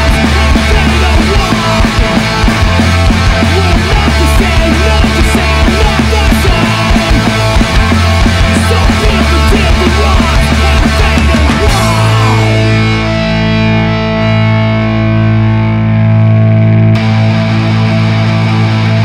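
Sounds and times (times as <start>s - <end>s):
punk band playing: 0.0s - 19.0s
distorted guitar chord ringing: 11.7s - 19.0s.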